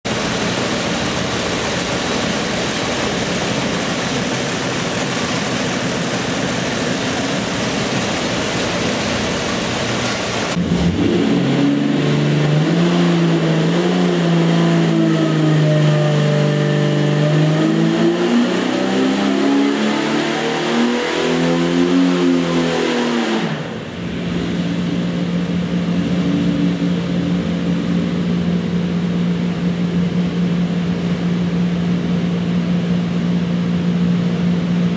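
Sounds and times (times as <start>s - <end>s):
engine roaring on dynamometer: 0.1s - 34.9s.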